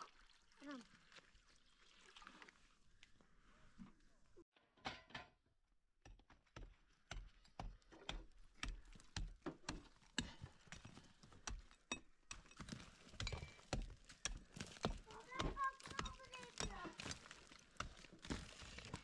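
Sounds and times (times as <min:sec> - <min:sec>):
irregular knocks and dull thuds: 0:06.1 - 0:19.0.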